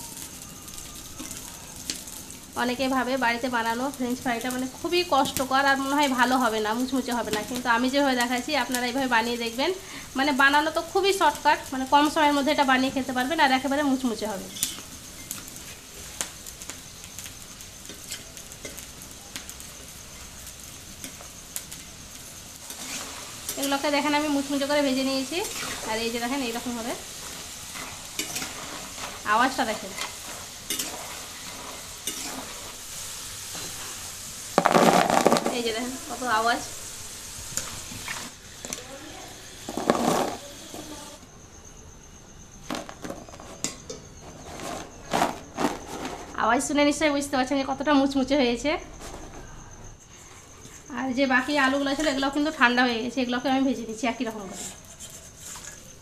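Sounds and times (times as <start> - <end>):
fries sizzling in hot oil: 0.0 - 56.0
metal spatula stirring: 17.8 - 20.4, 22.6 - 35.3, 54.2 - 56.0.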